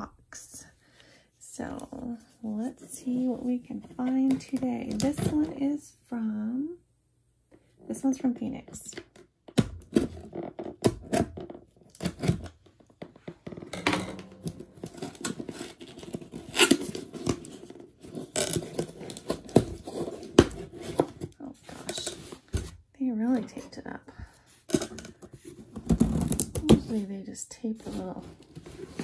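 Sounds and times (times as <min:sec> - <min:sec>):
packing tape tearing: 0:14.4 - 0:21.1, 0:25.8 - 0:26.8
cardboard scrapes and knocks: 0:14.5 - 0:22.8.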